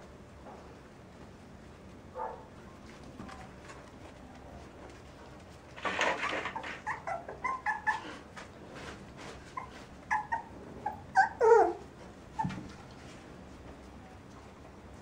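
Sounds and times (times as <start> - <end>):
puppy whining: 5.9 - 8.6, 9.2 - 13.0
puppies yelping: 6.0 - 8.4, 9.5 - 12.6.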